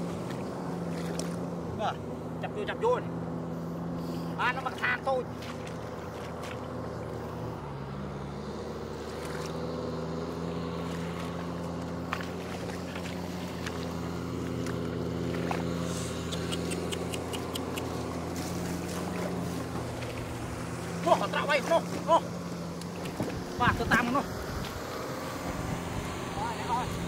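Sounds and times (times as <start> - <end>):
tractor engine running: 0.0 - 27.0
short sharp clicks: 16.2 - 18.0.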